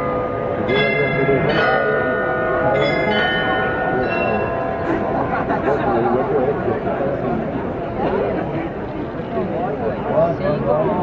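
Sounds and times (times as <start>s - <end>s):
glockenspiel bells ringing: 0.0s - 6.4s
crowd chatter: 0.0s - 11.0s.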